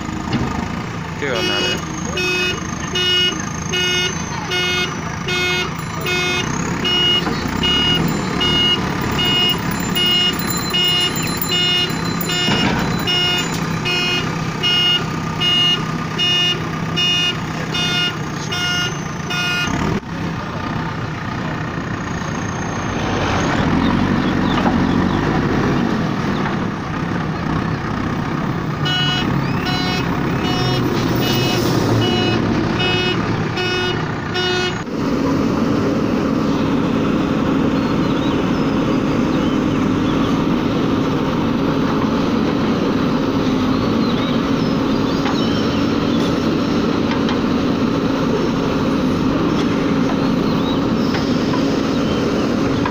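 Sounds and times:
diesel engine running: 0.0s - 52.9s
warning beeper pulses: 3.8s - 15.8s, 28.9s - 33.8s.

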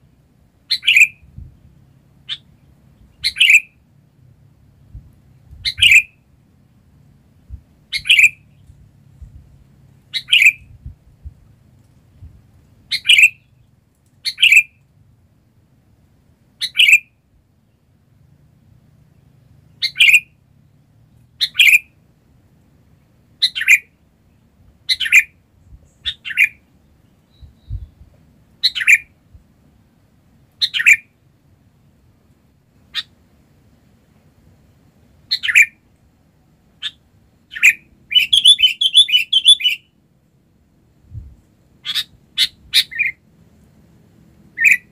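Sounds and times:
bulbul giving sharp calls: 0.7s - 1.2s, 2.2s - 2.5s, 3.2s - 3.7s, 5.6s - 6.2s, 7.9s - 8.4s, 10.1s - 10.7s, 12.9s - 13.6s, 14.2s - 14.7s, 16.6s - 17.1s, 19.8s - 20.3s, 21.4s - 22.0s, 23.4s - 23.9s, 24.9s - 26.7s, 28.6s - 29.1s, 30.6s - 31.1s, 32.9s - 33.2s, 35.3s - 35.8s, 36.8s - 39.9s, 41.8s - 43.2s, 44.6s - 44.9s.

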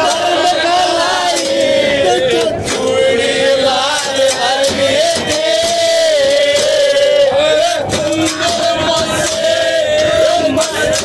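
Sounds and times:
men singing together: 0.0s - 11.0s
hand claps: 7.9s - 9.6s, 10.4s - 11.0s.

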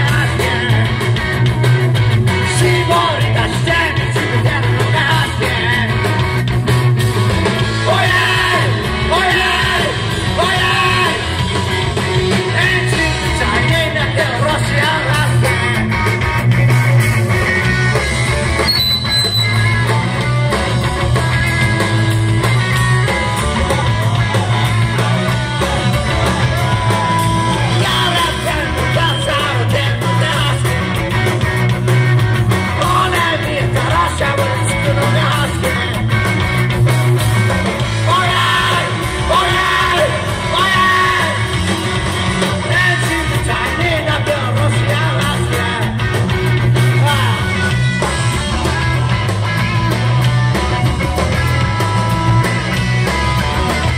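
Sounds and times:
man singing: 0.0s - 1.2s, 2.4s - 6.2s, 7.7s - 11.6s, 12.3s - 16.1s, 23.2s - 31.3s, 32.7s - 36.2s, 38.0s - 41.8s, 42.4s - 46.2s, 46.8s - 47.7s
rock band playing: 0.0s - 53.9s.

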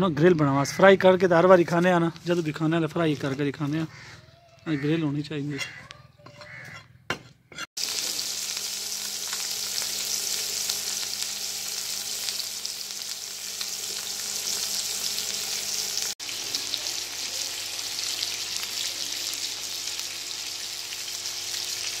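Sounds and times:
fish sizzling in oil: 7.8s - 22.0s.

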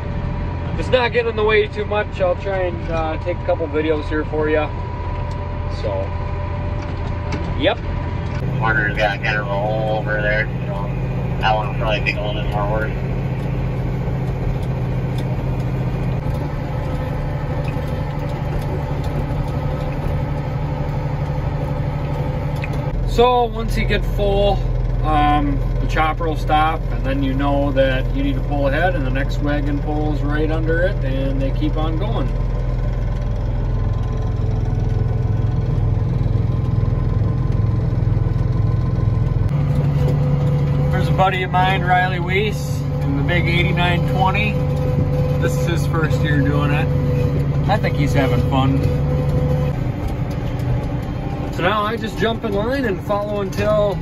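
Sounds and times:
tractor engine humming: 0.0s - 54.0s.

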